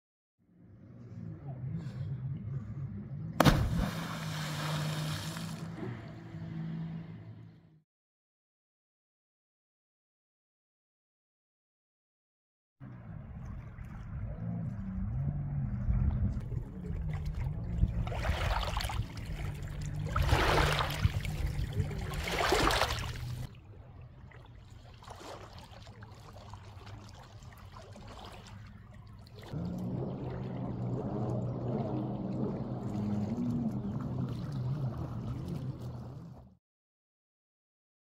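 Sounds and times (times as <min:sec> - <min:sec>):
jet ski engine hum: 0:00.6 - 0:07.8, 0:12.8 - 0:24.3, 0:25.5 - 0:36.6
waves lapping against rocks: 0:17.1 - 0:23.5, 0:24.5 - 0:29.9.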